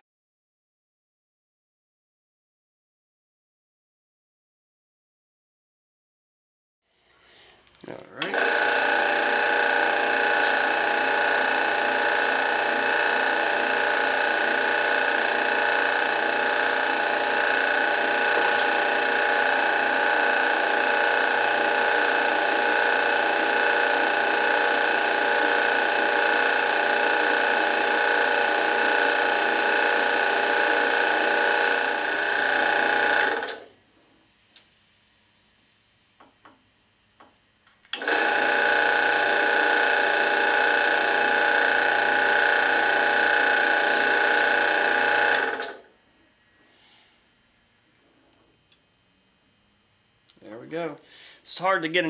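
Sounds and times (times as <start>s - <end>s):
drill press whining: 8.2s - 33.7s, 37.9s - 45.9s.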